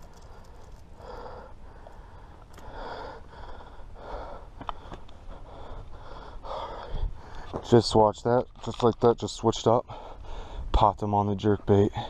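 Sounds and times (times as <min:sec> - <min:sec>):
man breathing heavily: 0:00.0 - 0:07.7, 0:09.8 - 0:10.7.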